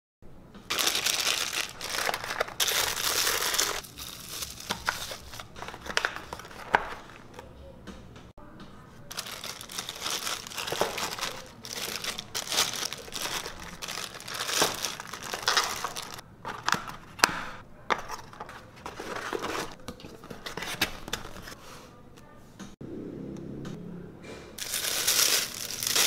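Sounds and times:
cardboard inserts rustling: 0:00.7 - 0:07.4, 0:09.1 - 0:17.3, 0:17.9 - 0:21.6, 0:24.6 - 0:26.0
plastic bags crinkling: 0:00.7 - 0:07.4, 0:09.1 - 0:16.8, 0:24.6 - 0:26.0.

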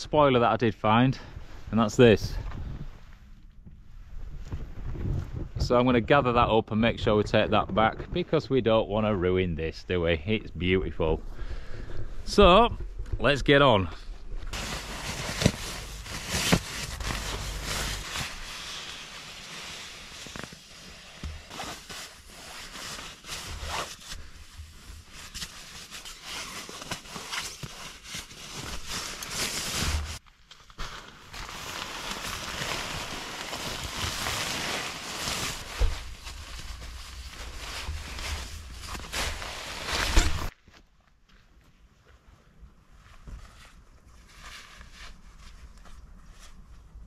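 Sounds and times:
nylon fabric rustling and crinkling: 0:14.5 - 0:40.6.

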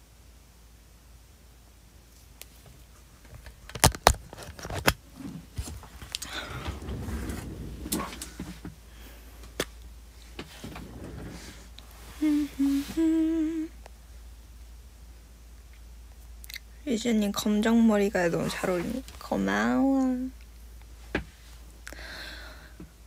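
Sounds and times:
phone being handled: 0:03.3 - 0:05.0
young woman humming: 0:12.1 - 0:13.8.

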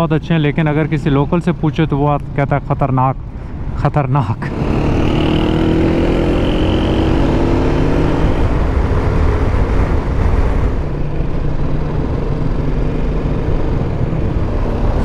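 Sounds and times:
road noise: 0:00.0 - 0:15.0
motorcycle engine running: 0:04.5 - 0:15.0.

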